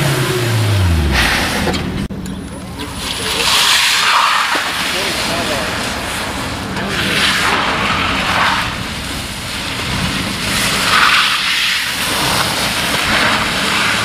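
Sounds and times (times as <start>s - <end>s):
tyres hissing on wet surface: 3.0s - 14.0s.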